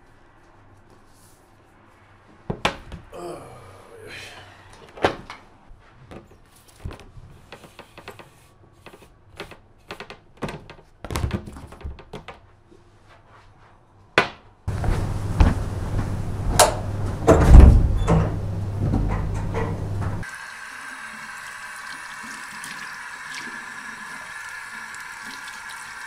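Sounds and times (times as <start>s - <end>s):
low hum: 14.7s - 20.2s.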